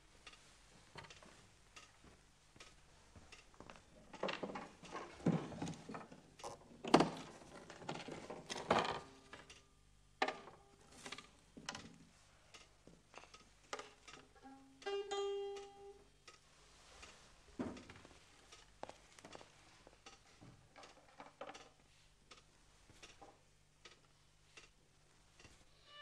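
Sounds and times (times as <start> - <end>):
plucked string note: 14.4 - 16.1
objects knocking scraping and rustling: 17.0 - 21.8.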